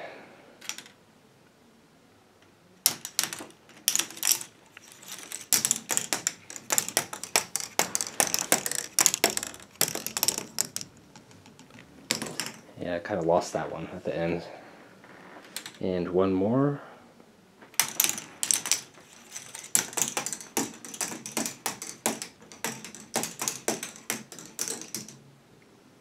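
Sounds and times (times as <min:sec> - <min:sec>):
plastic ball clattering down track: 0:00.6 - 0:01.0, 0:02.8 - 0:12.7, 0:15.5 - 0:15.8, 0:17.8 - 0:25.2.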